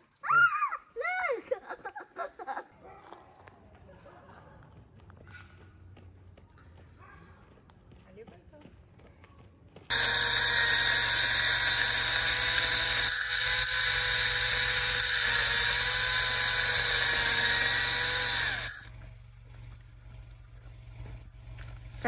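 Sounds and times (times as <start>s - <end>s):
electric chainsaw whining: 9.9s - 18.9s.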